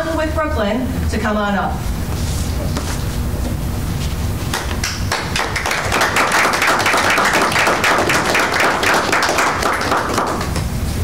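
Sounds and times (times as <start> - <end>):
audience applauding: 4.5 - 10.6.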